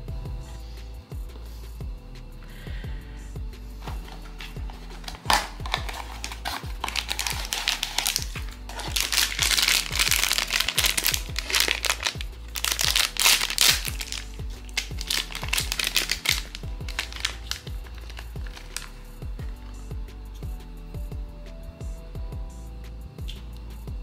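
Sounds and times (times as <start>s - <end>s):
background music with steady beat: 0.0s - 24.0s
plastic pouch crinkling and tearing: 3.8s - 19.1s.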